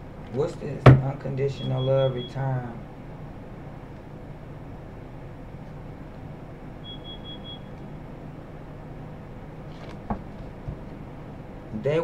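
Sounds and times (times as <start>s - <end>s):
steady low hum: 0.0s - 12.0s
high electronic beep: 6.8s - 7.8s.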